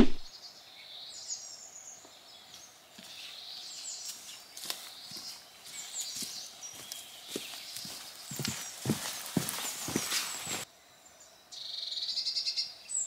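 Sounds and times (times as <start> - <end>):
small birds chirping: 0.0 - 13.0
footsteps on wooden steps: 4.1 - 10.6.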